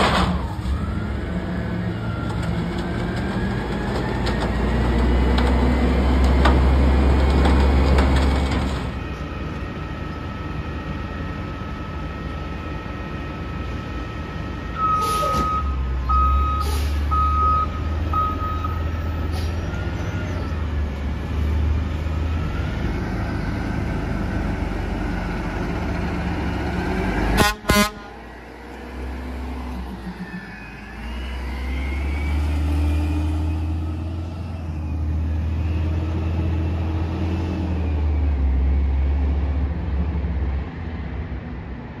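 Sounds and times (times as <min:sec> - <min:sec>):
backup alarm beeping: 0:14.7 - 0:18.8
engine revving: 0:19.3 - 0:39.9
truck horn honks: 0:27.3 - 0:28.2.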